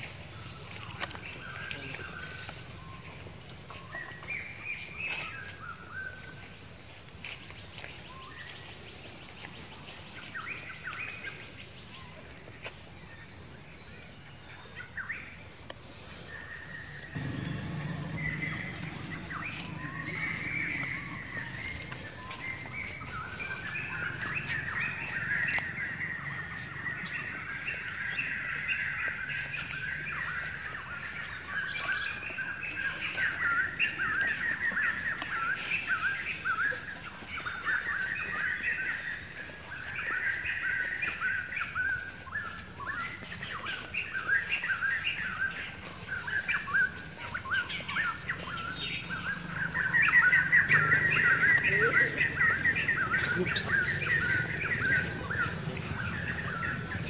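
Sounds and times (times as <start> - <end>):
birds chirping: 0.0 - 57.0
low hum: 17.1 - 28.1, 48.4 - 57.0.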